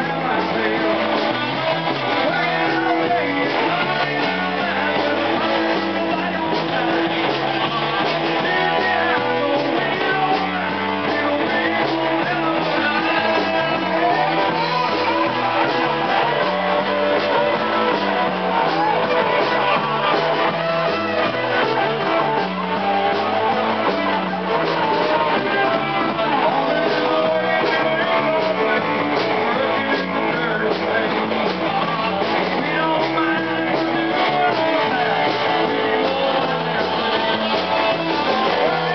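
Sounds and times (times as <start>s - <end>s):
drums keeping a steady beat: 0.0s - 38.9s
electric bass: 0.0s - 38.9s
electric guitar: 0.0s - 38.9s
lead melody line: 0.0s - 38.9s.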